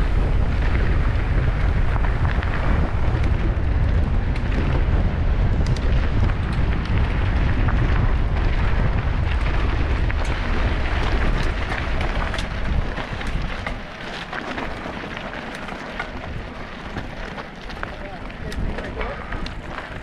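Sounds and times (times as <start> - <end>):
bike tyres crackling over dirt: 0.0 - 20.0
wind buffeting microphone: 0.0 - 20.0.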